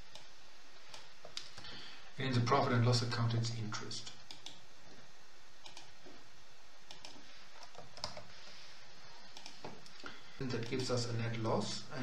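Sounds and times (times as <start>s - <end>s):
steady background hiss: 0.0s - 12.0s
keyboard and mouse clicks: 4.0s - 4.6s, 5.6s - 5.9s, 6.9s - 8.3s, 9.3s - 11.0s.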